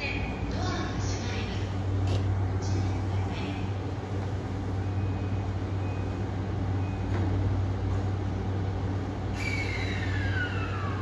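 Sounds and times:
electric train low rumble: 0.0 - 11.0
train whine gliding down: 9.3 - 11.0.

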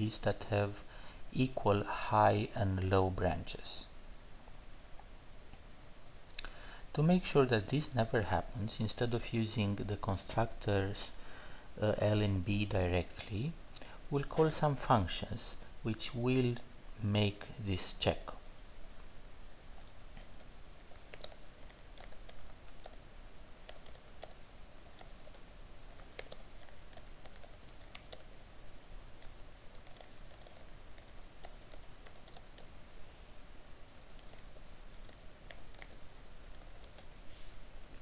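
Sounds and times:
computer keyboard typing: 19.8 - 23.0, 23.6 - 28.3, 29.2 - 32.8, 34.2 - 37.1.

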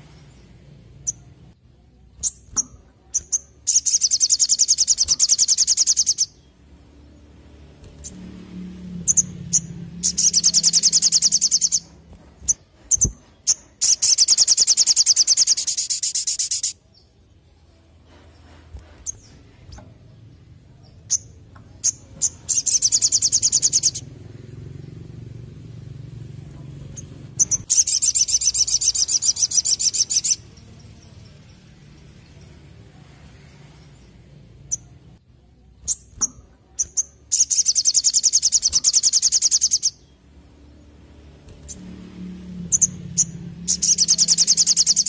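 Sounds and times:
bird chirping and trilling: 2.1 - 6.6, 9.0 - 17.1, 19.0 - 24.2, 26.8 - 32.5, 35.8 - 40.3, 42.6 - 45.0
bird rattling trill: 2.2 - 6.4, 9.0 - 16.8.

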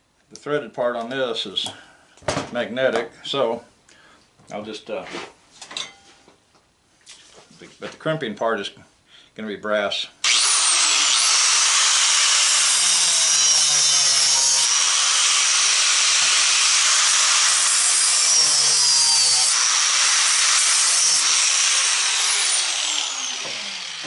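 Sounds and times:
angle grinder cutting brass: 10.2 - 24.0.

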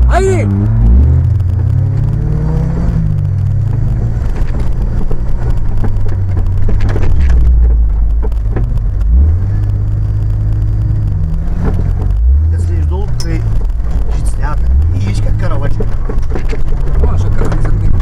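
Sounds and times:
off-road vehicle engine revving: 0.0 - 18.0
vehicle knocks and rattles: 3.6 - 9.0, 13.0 - 18.0.

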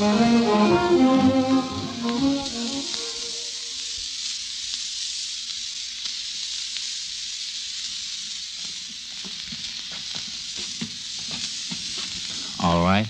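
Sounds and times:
brass music note: 0.0 - 3.5
record surface hiss and crackles: 0.0 - 13.0.

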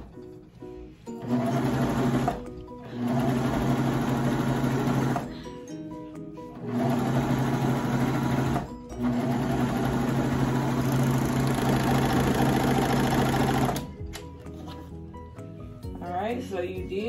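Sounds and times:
serger sewing machine running: 1.2 - 5.3, 6.6 - 13.9.

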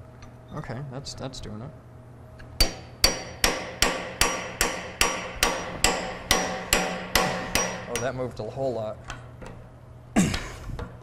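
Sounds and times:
hammer striking metal: 2.6 - 8.3.

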